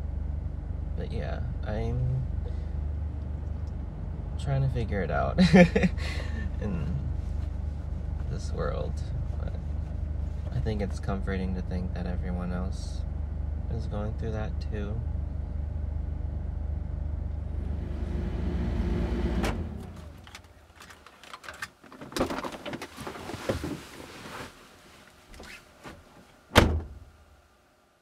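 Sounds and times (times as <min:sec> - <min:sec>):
low rumble: 0:00.0 - 0:20.4
loud thunk: 0:26.6 - 0:27.0.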